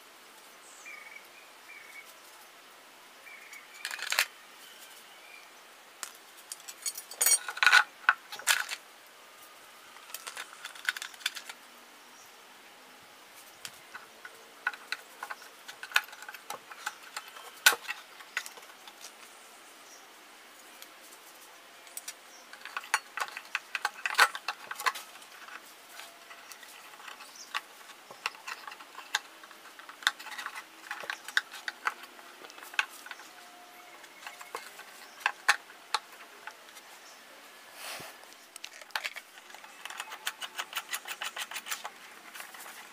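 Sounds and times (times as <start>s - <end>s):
screws and metal bracket clinking: 6.5s - 8.8s, 13.9s - 19.1s, 21.9s - 36.6s, 38.6s - 42.9s.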